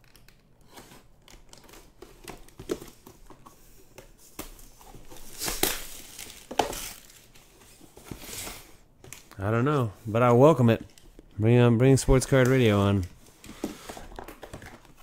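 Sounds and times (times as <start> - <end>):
plastic shrink wrap crinkling: 4.6 - 7.9.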